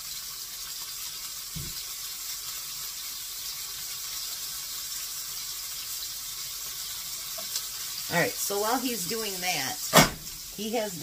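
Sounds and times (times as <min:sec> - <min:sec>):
patties sizzling in a skillet: 0:00.0 - 0:11.0
vegetable chopper thump: 0:01.6 - 0:01.8, 0:09.9 - 0:10.4.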